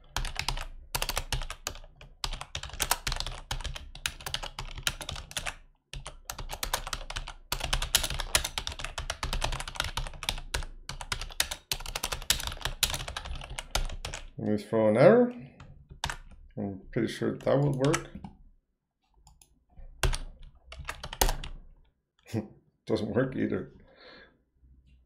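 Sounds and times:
typing on a keyboard: 0:00.0 - 0:14.4, 0:15.6 - 0:16.4, 0:17.3 - 0:18.3, 0:19.3 - 0:21.6.

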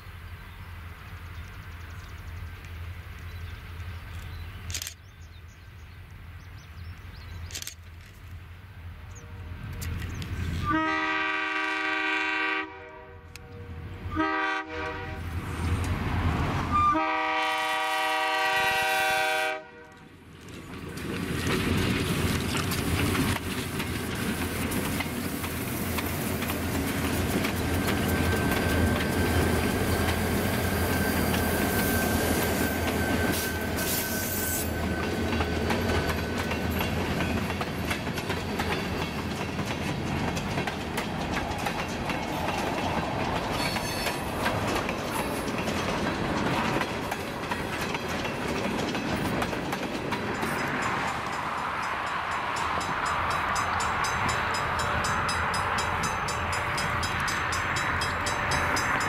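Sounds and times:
diesel locomotive engines rumbling: 0:00.0 - 0:59.0
train wheels clicking over track: 0:20.3 - 0:59.0
thin wheel squeal: 0:30.9 - 0:34.9.

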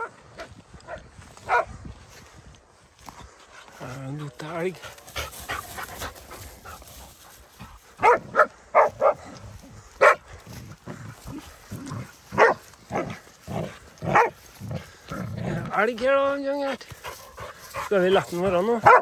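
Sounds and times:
dog barking: 0:00.9 - 0:01.7, 0:08.0 - 0:09.3, 0:10.0 - 0:10.2, 0:12.3 - 0:13.2, 0:14.0 - 0:14.4.

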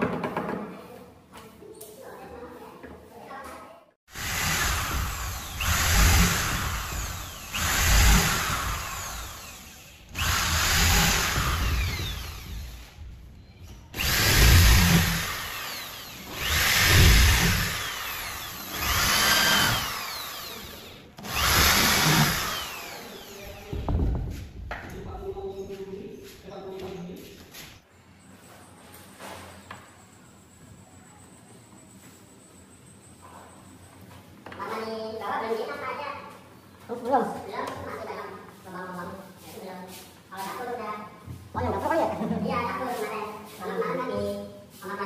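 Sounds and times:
electric drill boring into wood: 0:04.1 - 0:13.0, 0:13.9 - 0:23.9.

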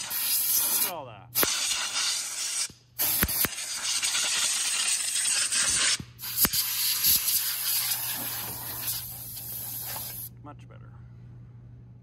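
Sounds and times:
air blow gun hissing: 0:00.0 - 0:10.3.

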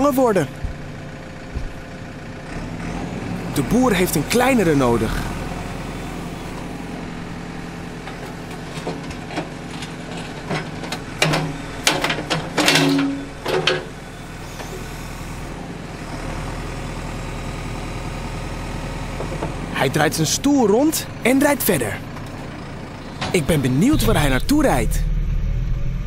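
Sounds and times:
diesel engine running: 0:00.0 - 0:26.0
metallic clanks and knocks: 0:08.0 - 0:14.0.

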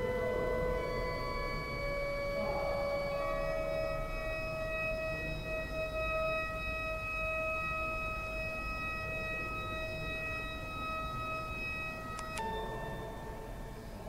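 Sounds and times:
pipe organ chord: 0:00.0 - 0:07.1.

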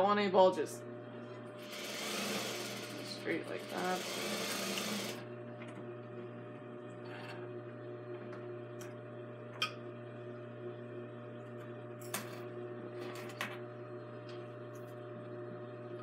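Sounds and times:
sewing machine humming: 0:01.4 - 0:05.3.

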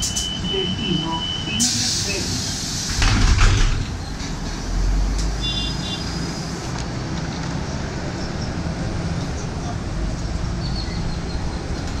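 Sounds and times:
bus doors shutting: 0:00.0 - 0:05.3
bus engine and road rumble: 0:00.0 - 0:12.0.

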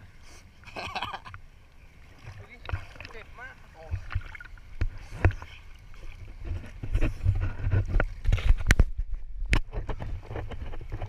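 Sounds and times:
seawater sloshing and splashing: 0:00.0 - 0:11.0
knocks and buffeting on microphone: 0:03.8 - 0:11.0.

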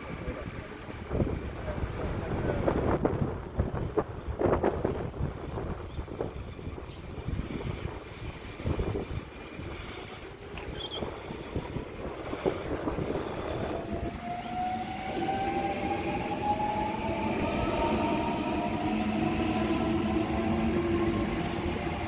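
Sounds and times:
electric train motor whine: 0:13.0 - 0:22.0.

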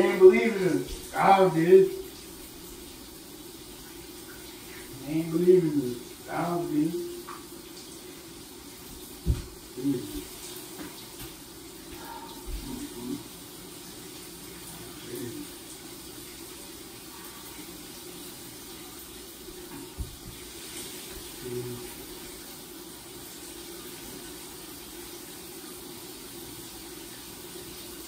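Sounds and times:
shower running: 0:00.0 - 0:28.0
dull thumps: 0:09.2 - 0:09.6.

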